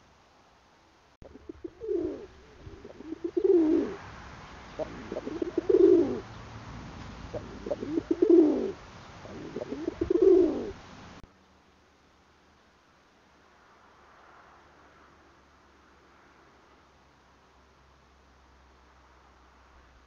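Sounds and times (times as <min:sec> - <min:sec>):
pigeon cooing: 0:01.2 - 0:04.1, 0:04.7 - 0:06.3, 0:07.3 - 0:10.8.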